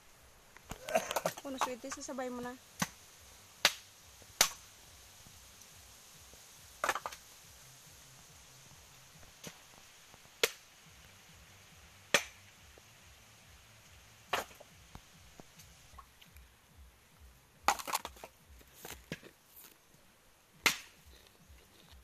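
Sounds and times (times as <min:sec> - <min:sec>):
coconuts cracking: 0:00.5 - 0:04.8, 0:06.3 - 0:07.4, 0:09.2 - 0:13.0, 0:13.8 - 0:16.6, 0:17.6 - 0:22.0.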